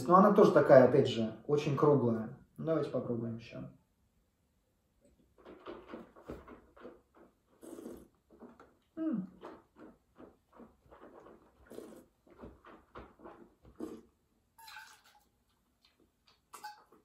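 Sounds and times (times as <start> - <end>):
person slurping wine: 6.8 - 15.3
spitting into metal spittoon: 7.2 - 9.9, 11.6 - 12.2.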